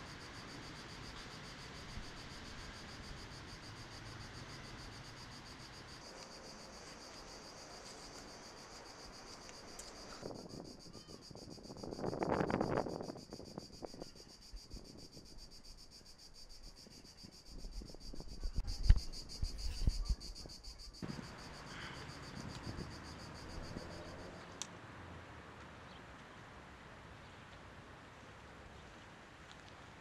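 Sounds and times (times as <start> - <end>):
outdoor hiss: 0.0 - 10.4, 21.0 - 24.6
insect trill: 0.0 - 24.5.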